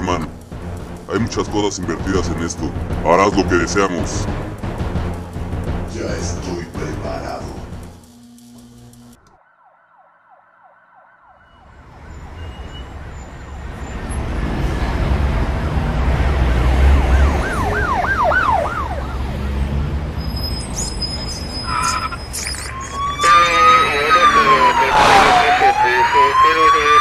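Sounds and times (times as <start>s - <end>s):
city traffic rumble: 0.0s - 8.1s, 11.4s - 27.0s
emergency vehicle siren: 9.1s - 27.0s.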